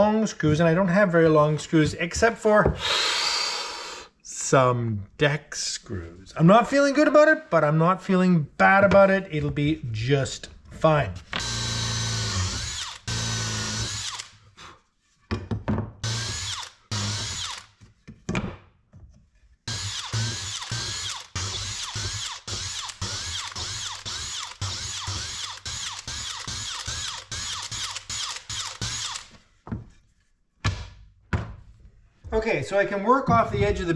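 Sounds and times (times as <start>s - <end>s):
cordless drill boring into wood: 11.4s - 14.4s, 16.0s - 17.7s, 19.7s - 29.3s.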